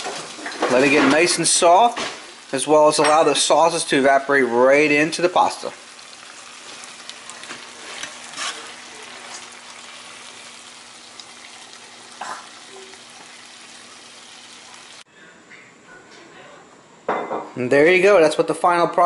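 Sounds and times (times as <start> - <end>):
sauce sizzling in a skillet: 0.0 - 15.1.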